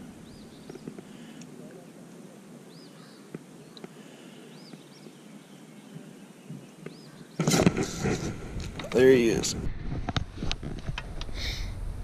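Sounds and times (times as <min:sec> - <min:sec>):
bird chirping: 0:00.0 - 0:02.0, 0:02.6 - 0:08.1
camera handling rustling and knocking: 0:06.9 - 0:09.0, 0:09.6 - 0:11.3.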